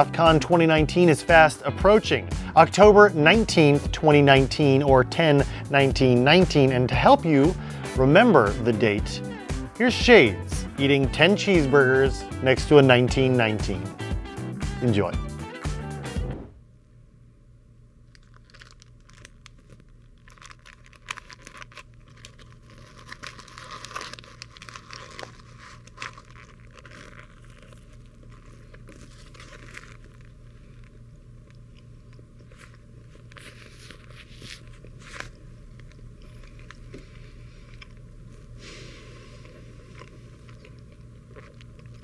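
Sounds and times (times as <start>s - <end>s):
paper wrapper crinkling: 18.0s - 38.5s
biting and chewing: 18.1s - 38.0s, 39.3s - 42.0s.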